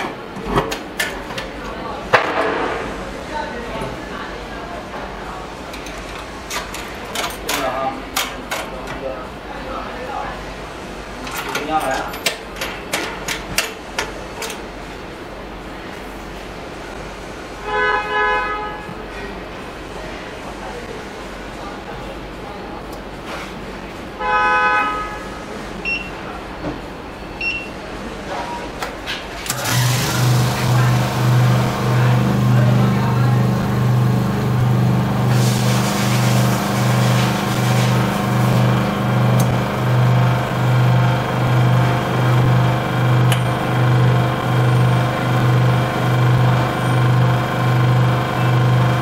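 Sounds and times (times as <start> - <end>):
loud horn-like tone: 17.6 - 18.9
pump humming: 29.5 - 49.0.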